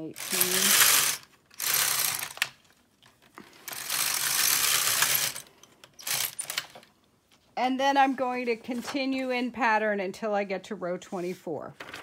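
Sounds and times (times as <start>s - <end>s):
knitting machine carriage rasp: 0.0s - 2.5s, 3.7s - 6.8s.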